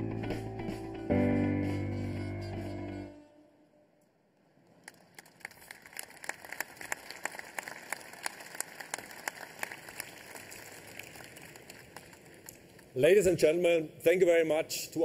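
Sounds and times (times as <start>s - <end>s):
music: 0.0s - 3.4s
audience applause: 4.8s - 13.0s.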